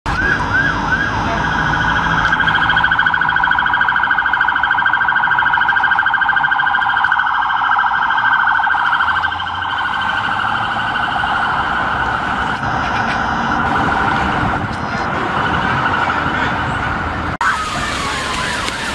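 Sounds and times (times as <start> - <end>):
police siren warbling: 0.1 - 18.9.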